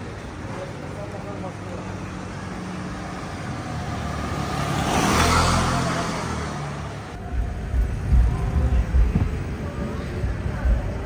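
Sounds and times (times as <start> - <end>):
vehicle passing: 1.7 - 10.0.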